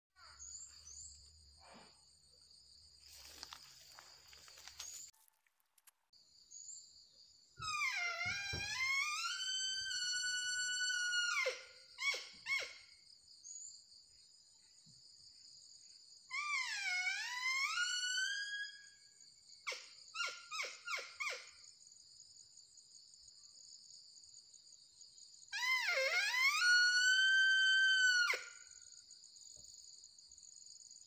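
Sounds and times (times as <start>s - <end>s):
insects droning: 0.2s - 5.1s.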